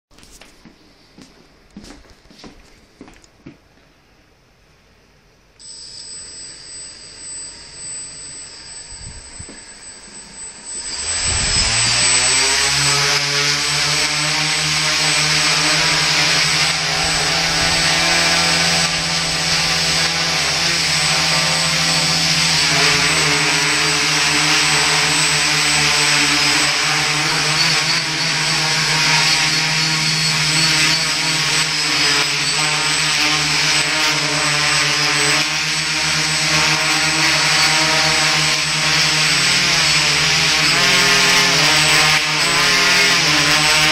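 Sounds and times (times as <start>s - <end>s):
drone motors high whine: 5.6s - 43.9s.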